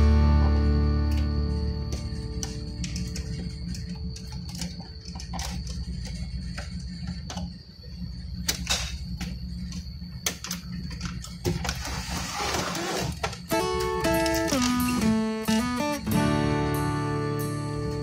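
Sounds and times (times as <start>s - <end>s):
steady low hum: 0.0s - 18.0s
rustling and scraping: 11.1s - 13.5s.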